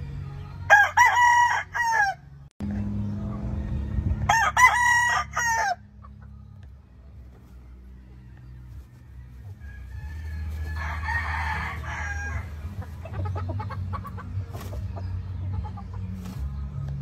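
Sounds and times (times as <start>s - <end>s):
rooster crowing: 0.7s - 2.2s, 4.3s - 5.8s, 9.0s - 12.7s.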